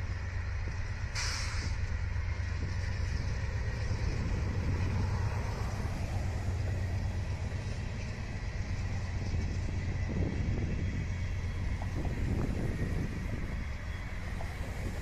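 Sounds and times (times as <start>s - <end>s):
distant freight train rumble: 0.0s - 15.0s.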